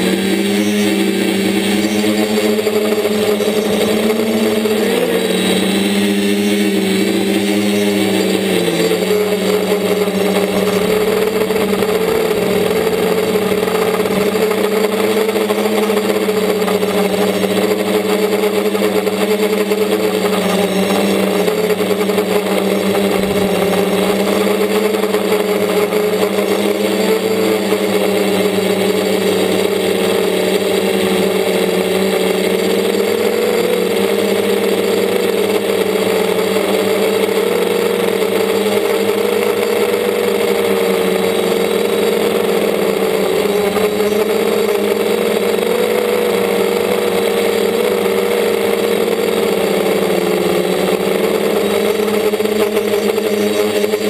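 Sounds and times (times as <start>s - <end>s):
quadcopter motors droning: 0.0s - 54.0s.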